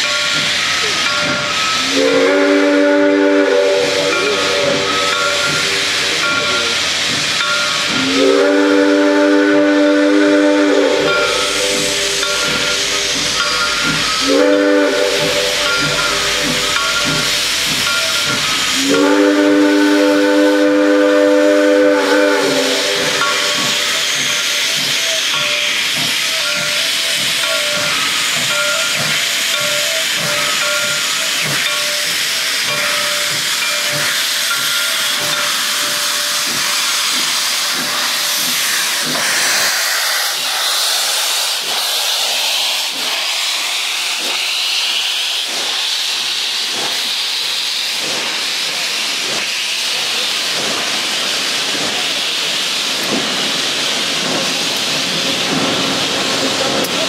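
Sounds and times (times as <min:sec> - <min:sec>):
steam locomotive chime whistle: 0:00.0 - 0:39.6
steam hissing: 0:00.0 - 0:57.0
steam locomotive exhaust chuffs: 0:00.0 - 0:57.0.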